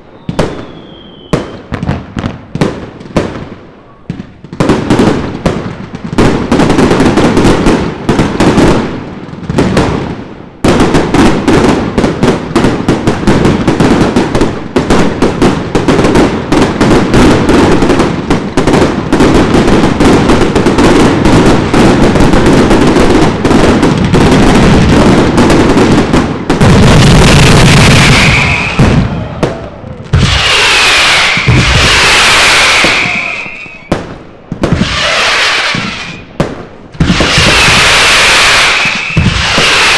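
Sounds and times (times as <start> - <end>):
firework whistling: 0.0 - 2.0, 26.8 - 34.0, 34.6 - 36.4, 37.0 - 39.9
fireworks bangs and crackles: 0.0 - 39.9.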